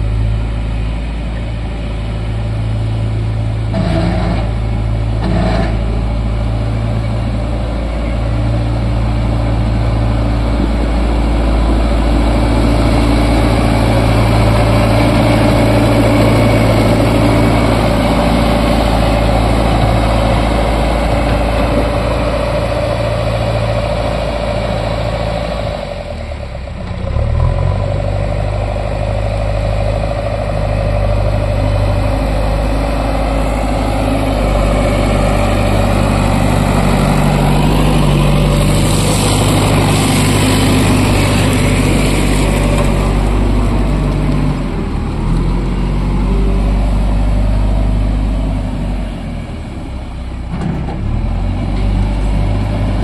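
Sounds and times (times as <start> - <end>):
diesel engine running: 0.0 - 53.0
gravel spreading from bucket: 38.5 - 44.4.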